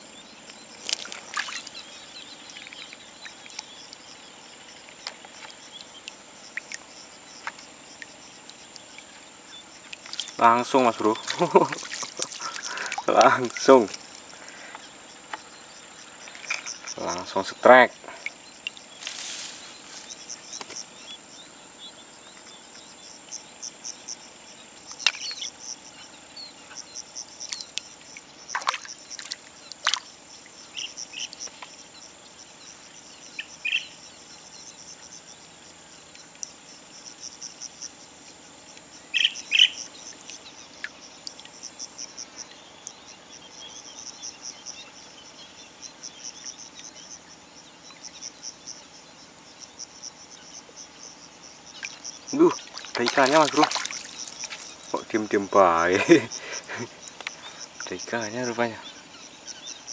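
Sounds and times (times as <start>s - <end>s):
insects chirping: 0.0s - 59.9s
bird calls: 24.9s - 32.1s, 33.1s - 34.4s, 39.0s - 41.4s, 51.6s - 59.9s.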